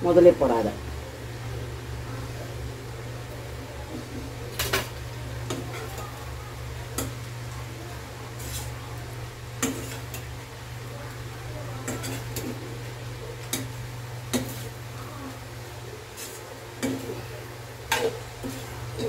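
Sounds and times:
metal spatula scraping wok: 8.3 - 8.8, 9.6 - 10.3, 11.8 - 12.6, 16.0 - 19.0.

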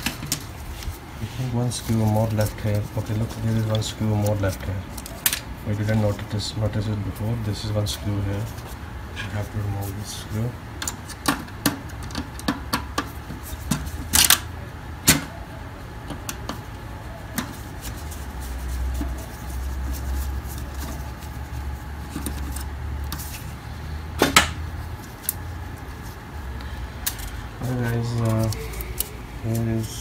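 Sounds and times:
low steady hum: 0.0 - 30.0.

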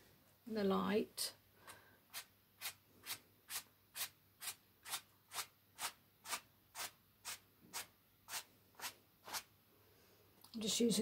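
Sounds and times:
paintbrush stroking canvas: 2.1 - 9.5.

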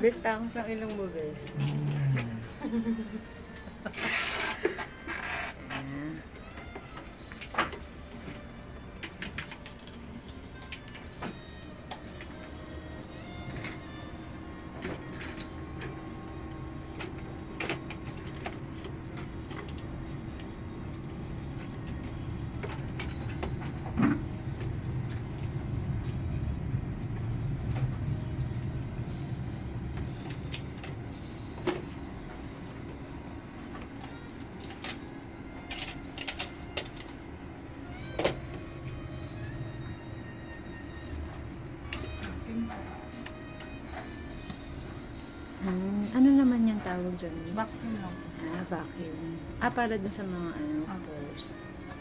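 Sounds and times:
vacuum motor hum: 10.3 - 35.6.

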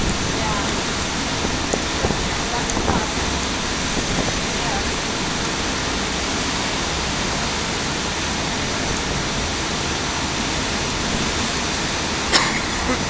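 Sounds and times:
wind rushing: 0.0 - 9.6
churning water: 0.0 - 13.0.

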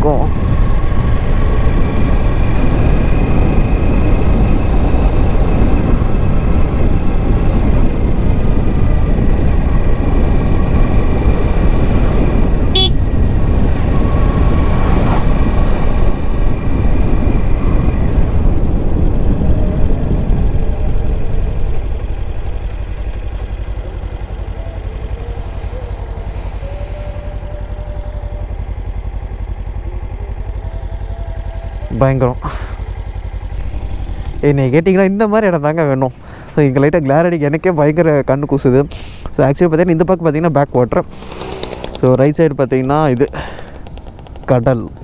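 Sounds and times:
wind rush on microphone: 0.0 - 28.4
motorcycle engine running: 0.0 - 38.9, 39.6 - 45.0
thin steady whine: 23.4 - 38.6.

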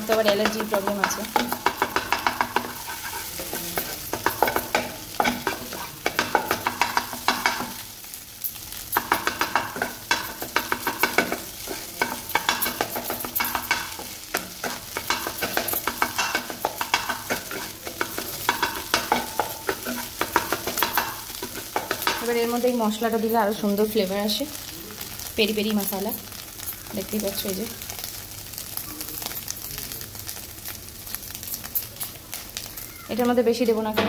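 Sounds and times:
eggs sizzling in oil: 0.0 - 34.0
spatula scraping a pan: 0.4 - 7.9, 9.0 - 22.3.

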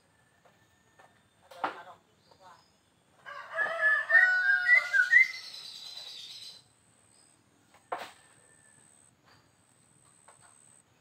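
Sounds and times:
rooster crowing: 3.2 - 5.3.

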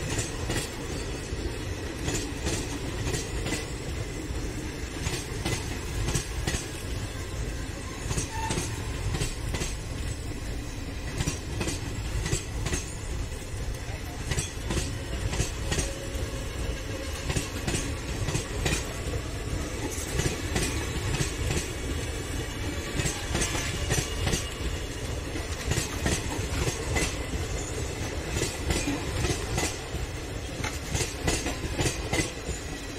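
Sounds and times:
train wheels rumbling on rail: 0.0 - 32.9
wheels clacking over rail joints: 11.0 - 32.9.

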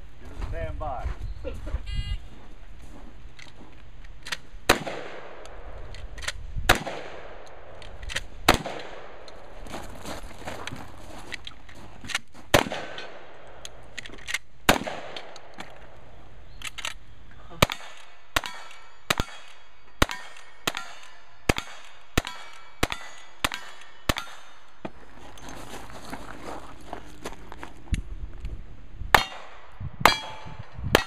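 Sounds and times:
rifle shots: 4.6 - 9.6, 12.5 - 16.0, 17.6 - 24.7.

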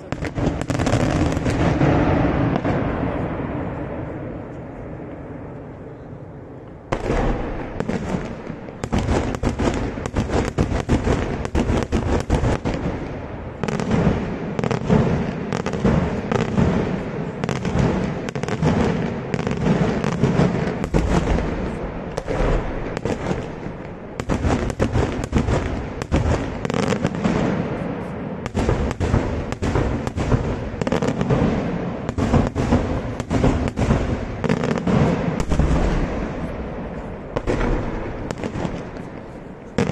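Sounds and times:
fireworks bangs and cracks: 0.0 - 39.9.

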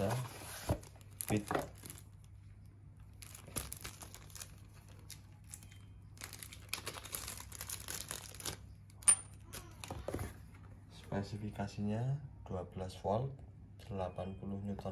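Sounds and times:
plastic bag crinkling: 0.9 - 2.3, 3.0 - 9.8.

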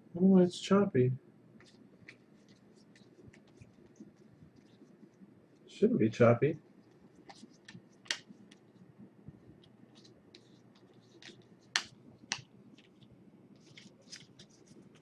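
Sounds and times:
cards flipped by hand: 1.6 - 4.9, 6.9 - 8.7, 9.9 - 15.0.

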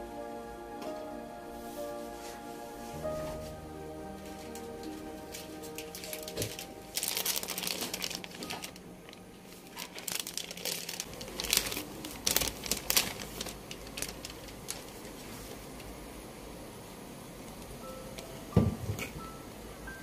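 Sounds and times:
cardboard and paper rustling: 4.2 - 15.7.

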